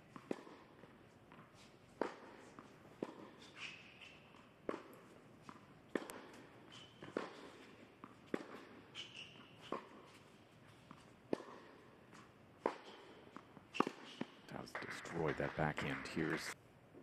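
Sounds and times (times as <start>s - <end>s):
tennis ball hit by racket: 2.0s - 2.4s, 3.0s - 3.3s, 4.6s - 10.2s, 10.9s - 15.6s
shoe squeaks on court: 3.2s - 4.5s, 6.0s - 11.7s, 12.7s - 14.4s.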